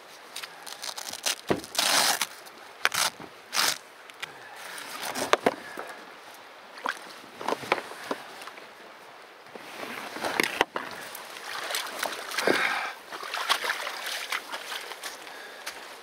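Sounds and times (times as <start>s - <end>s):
rustling of nylon bags: 0.0s - 3.8s, 4.5s - 5.8s.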